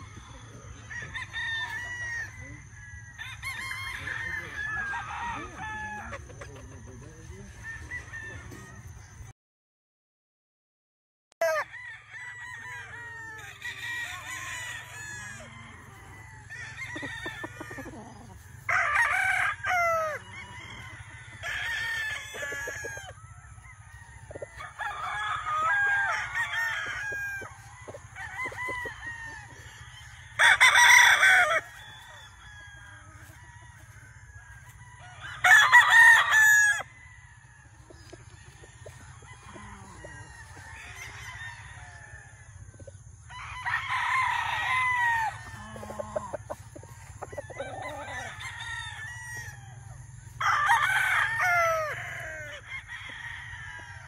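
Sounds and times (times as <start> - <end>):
roosters crowing: 0.0 - 9.3, 11.4 - 54.0
chickens clucking: 5.4 - 9.3, 15.2 - 18.7, 37.8 - 40.6, 44.7 - 48.4.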